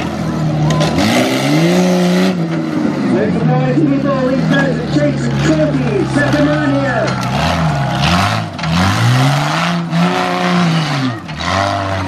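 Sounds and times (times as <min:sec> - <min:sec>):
tyre and dirt noise: 0:00.0 - 0:12.0
engine revving hard: 0:00.8 - 0:02.5, 0:04.2 - 0:12.0.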